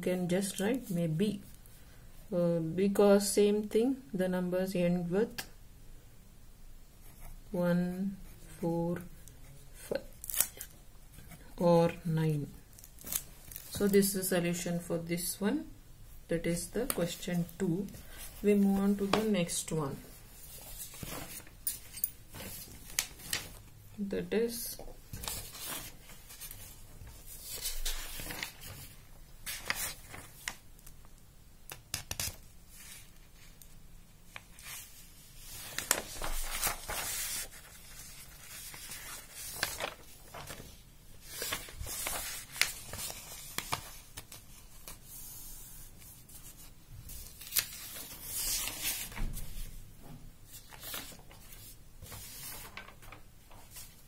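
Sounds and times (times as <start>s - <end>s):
paper rustling and crinkling: 12.7s - 13.9s, 20.2s - 23.7s, 24.8s - 31.0s, 34.3s - 49.8s, 50.5s - 54.0s.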